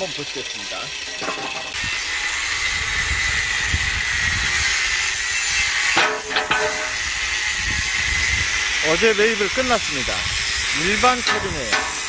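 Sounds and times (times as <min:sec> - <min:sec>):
wind rumbling on microphone: 0:01.8 - 0:05.8, 0:06.9 - 0:11.8.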